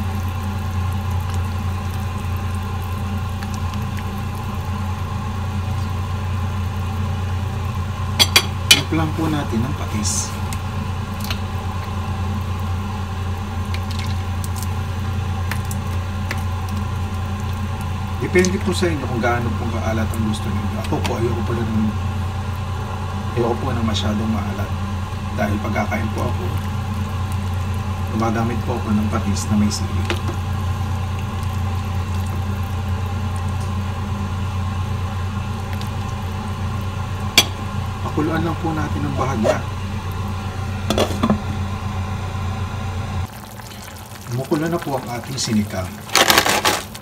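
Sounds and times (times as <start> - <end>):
low mechanical hum: 0.0 - 47.0.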